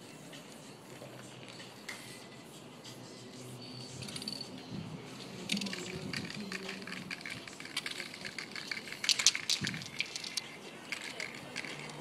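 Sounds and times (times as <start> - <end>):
spray can mixing ball rattling: 5.4 - 12.0.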